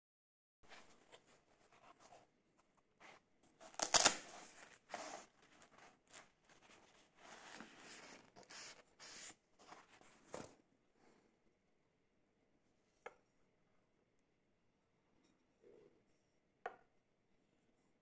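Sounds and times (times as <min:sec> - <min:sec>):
fabric rustling and scraping: 0:03.0 - 0:10.6
fabric tearing rasp: 0:03.7 - 0:04.3.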